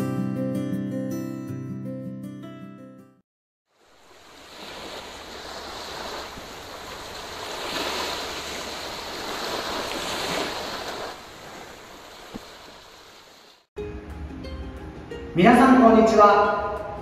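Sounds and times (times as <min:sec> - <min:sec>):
small waves washing onto beach: 0:03.7 - 0:13.7.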